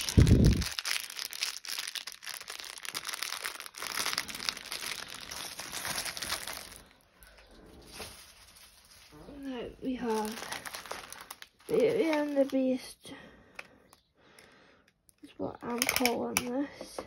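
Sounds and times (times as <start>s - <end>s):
plastic packaging crinkling: 0.0s - 13.0s, 15.7s - 16.1s.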